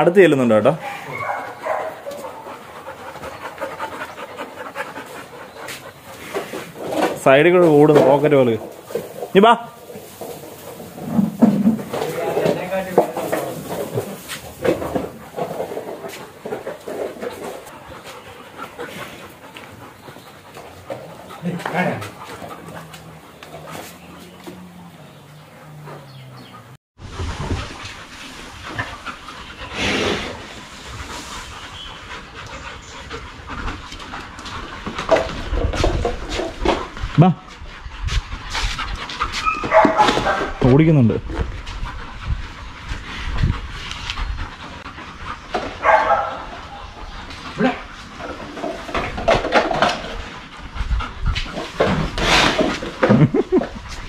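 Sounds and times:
dogs panting: 0.0s - 54.0s.

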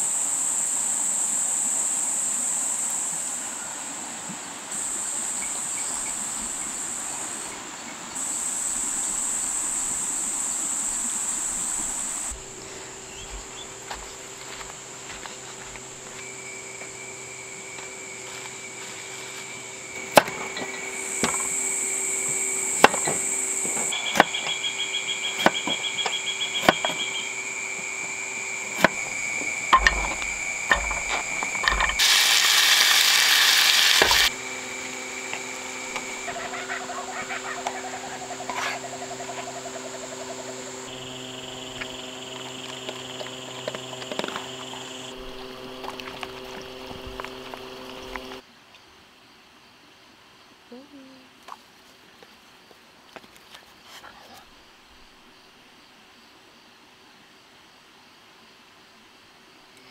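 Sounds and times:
insects and frogs chorus: 0.0s - 50.7s
loud hiss: 8.2s - 36.3s
clicks and knocks of cooking: 29.7s - 32.2s.

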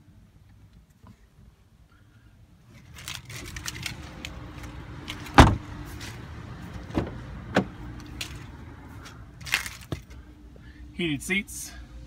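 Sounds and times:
car door shutting: 5.1s - 5.7s, 6.8s - 7.8s.

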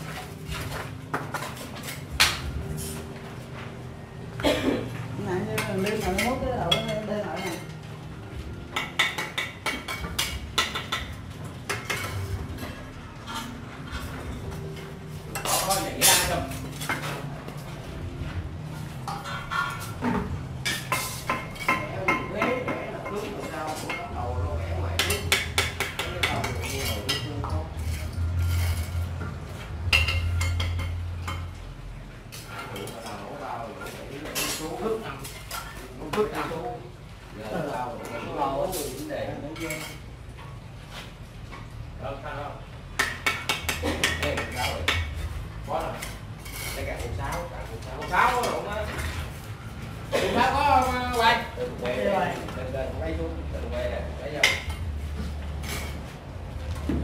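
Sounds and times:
steel trowel clinking and scraping: 26.4s - 29.2s, 44.5s - 47.1s
trowel tapping and scraping bricks: 43.0s - 45.2s.

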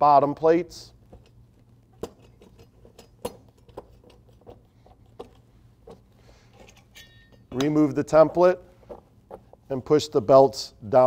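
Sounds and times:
faint low room hum: 0.0s - 11.0s
metal plates and bolts clicking: 2.0s - 8.4s.

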